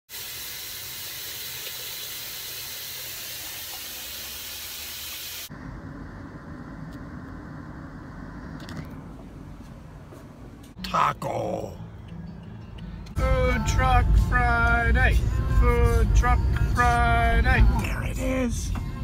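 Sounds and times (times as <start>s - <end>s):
low muffled rumble: 5.5s - 10.8s.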